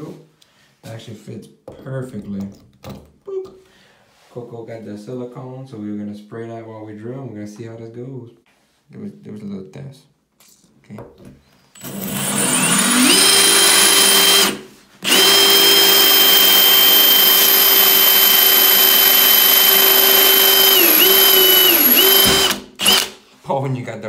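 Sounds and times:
cordless drill whining: 0:11.8 - 0:23.2.

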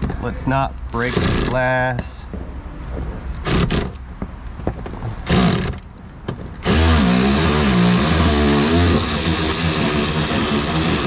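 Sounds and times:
cordless power driver spinning: 0:06.6 - 0:11.0.

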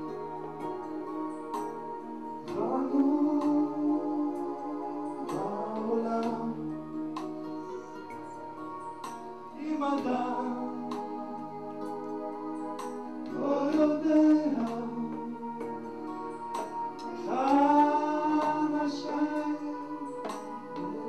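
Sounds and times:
held musical accompaniment: 0:00.0 - 0:21.0
man singing into a microphone: 0:02.4 - 0:07.1, 0:09.5 - 0:12.5, 0:13.3 - 0:16.2, 0:17.1 - 0:21.0.

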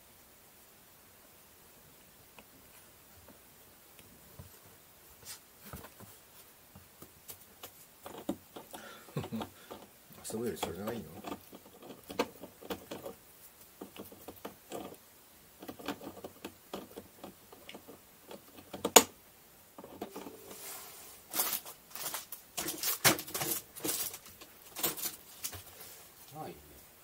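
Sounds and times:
teeth clicking on plastic: 0:10.6 - 0:13.2, 0:15.6 - 0:19.1.

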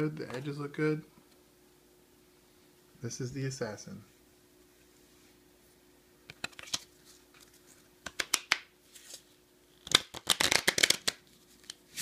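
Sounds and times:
playing cards snapping: 0:08.0 - 0:08.7, 0:09.8 - 0:11.8.

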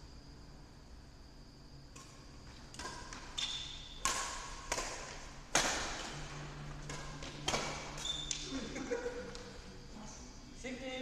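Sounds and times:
rackets striking shuttlecock: 0:01.9 - 0:09.5.

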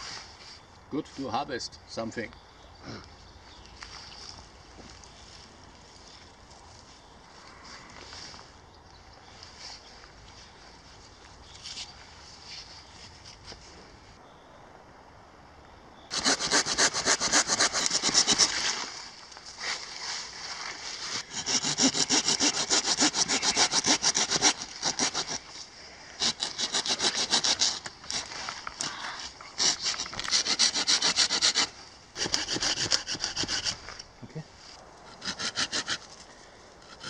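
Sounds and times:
pruning saw cutting log: 0:16.1 - 0:18.8, 0:21.2 - 0:25.6, 0:26.2 - 0:28.8, 0:29.6 - 0:34.0, 0:35.1 - 0:36.1.

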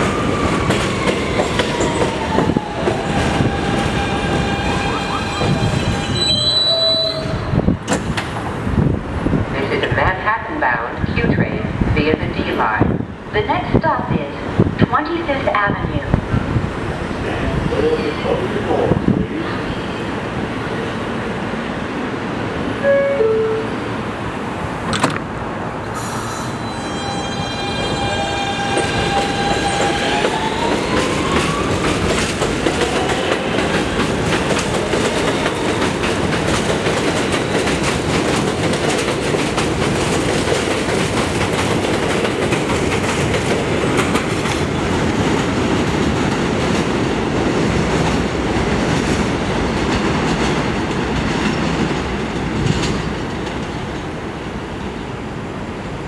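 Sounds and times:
train cars clickety-clack: 0:00.0 - 0:10.4, 0:27.0 - 0:54.3
train doors closing thump: 0:07.8 - 0:08.6, 0:24.8 - 0:25.4.

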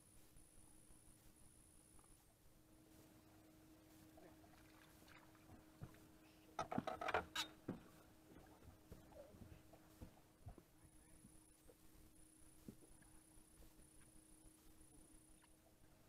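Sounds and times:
knocks and rattles on boat deck: 0:06.6 - 0:10.7.

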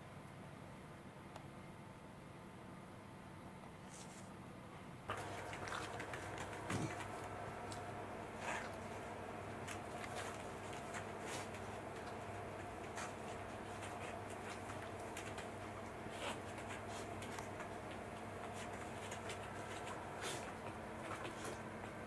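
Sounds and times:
room hum: 0:00.0 - 0:22.0
soft irregular ticks and rustles: 0:05.1 - 0:22.0.

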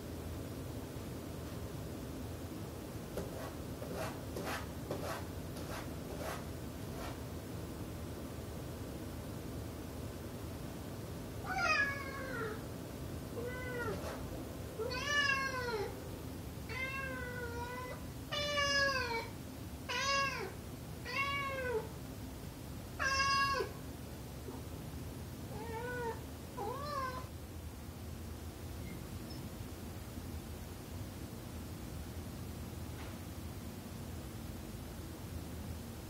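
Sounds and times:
cat meowing: 0:11.5 - 0:12.6, 0:13.4 - 0:14.2, 0:14.8 - 0:15.9, 0:16.7 - 0:19.3, 0:19.9 - 0:21.9, 0:23.0 - 0:23.8, 0:25.5 - 0:27.3.

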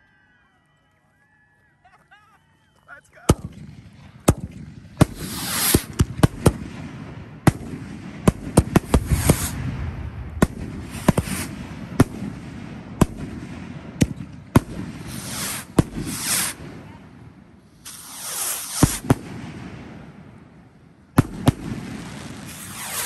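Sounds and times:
firework bangs: 0:03.2 - 0:23.0
rockets whooshing up: 0:03.3 - 0:16.9, 0:17.6 - 0:20.5, 0:21.2 - 0:23.0.

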